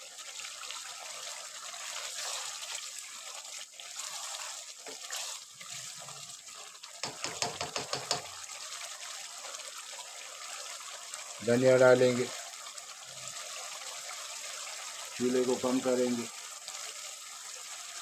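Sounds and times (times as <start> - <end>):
gravy sizzling and bubbling: 0.0 - 18.0
spatula knocking and scraping pot: 7.0 - 8.4.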